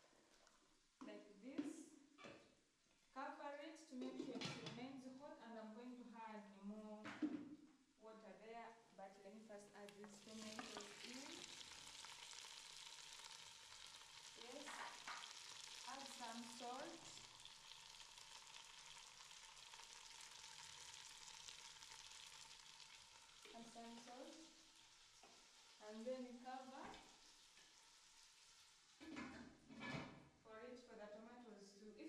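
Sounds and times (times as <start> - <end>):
vegetables sizzling in oil: 9.9 - 29.1.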